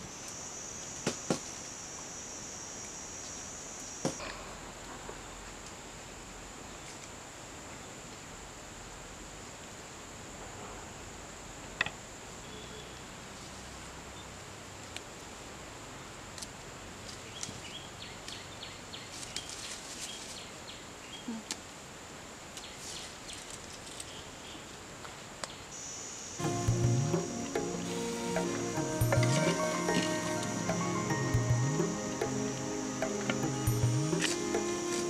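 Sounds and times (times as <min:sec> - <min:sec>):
high insect drone: 0:00.0 - 0:05.5, 0:25.8 - 0:35.0.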